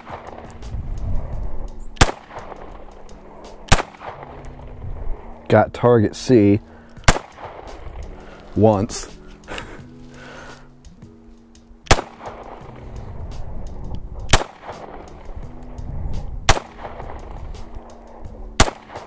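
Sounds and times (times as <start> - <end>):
pistol shots: 0.0 - 0.6, 2.0 - 5.2, 7.0 - 8.1, 11.8 - 12.8, 14.3 - 15.3, 16.5 - 17.8, 18.6 - 19.0
background music: 0.0 - 19.0.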